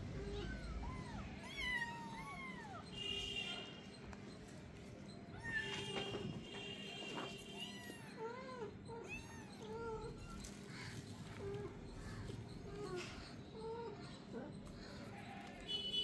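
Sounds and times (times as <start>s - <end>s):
kittens meowing: 0.1s - 2.9s, 5.3s - 6.0s, 7.5s - 15.5s.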